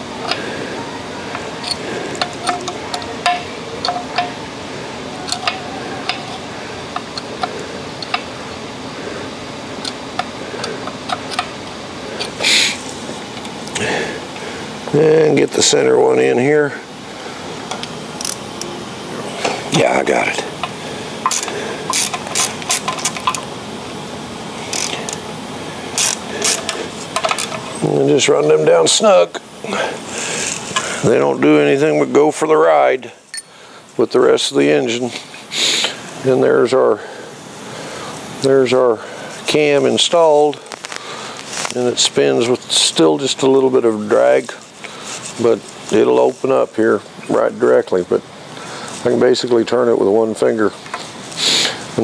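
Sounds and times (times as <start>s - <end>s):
ratchet clicking on metal: 20.6s - 23.4s, 24.7s - 25.2s, 26.0s - 27.8s.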